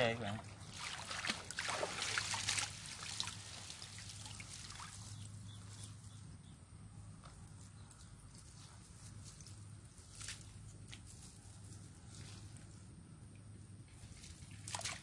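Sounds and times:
water splashing and dripping: 0:00.7 - 0:05.2, 0:14.4 - 0:15.0.

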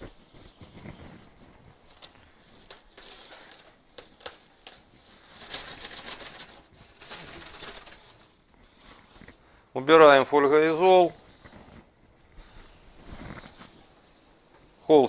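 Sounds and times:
foil insulation crinkling: 0:00.6 - 0:09.6.

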